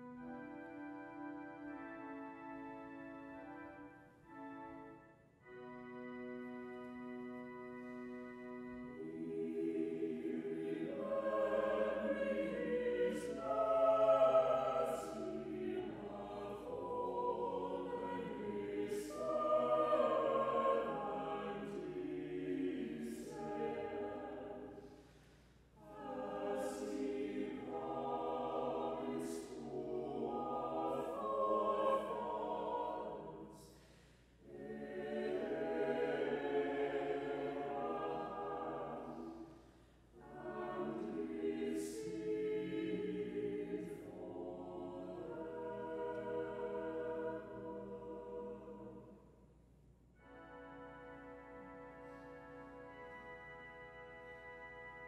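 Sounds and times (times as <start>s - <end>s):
mixed choir singing unaccompanied: 8.8s - 25.0s, 25.8s - 33.7s, 34.4s - 39.6s, 40.2s - 49.2s.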